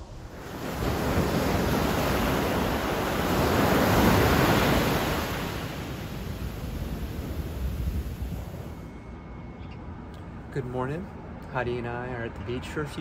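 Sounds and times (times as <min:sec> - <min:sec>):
ocean surf breaking on beach: 0:00.0 - 0:08.8.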